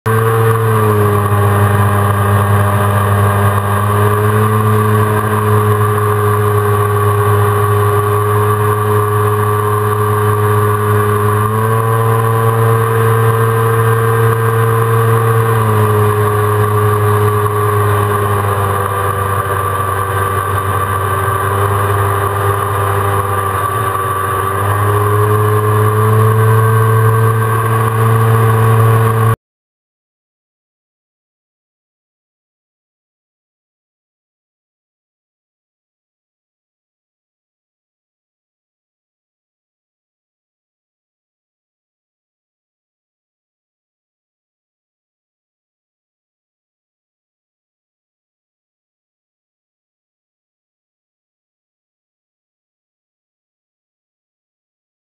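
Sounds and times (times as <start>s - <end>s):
jet ski engine running: 0.1s - 29.4s.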